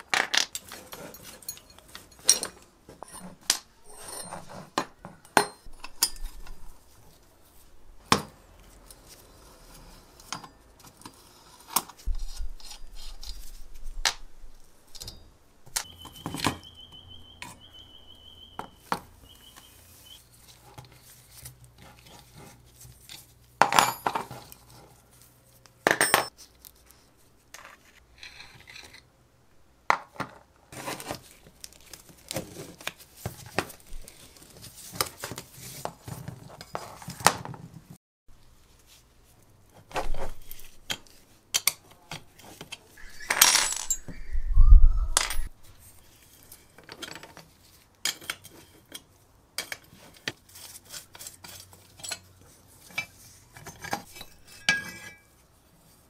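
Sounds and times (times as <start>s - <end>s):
metal parts set on wooden bench: 0.0s - 7.0s, 23.1s - 24.9s, 25.8s - 26.8s, 39.9s - 44.1s
spanner clinking on metal: 0.4s - 3.2s, 43.2s - 44.1s.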